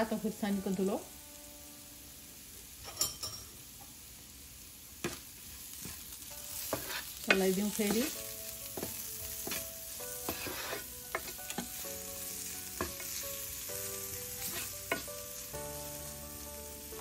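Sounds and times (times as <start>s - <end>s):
onions sizzling in a pan: 0.0s - 17.0s
spatula scraping a pan: 5.0s - 11.8s, 14.3s - 15.2s.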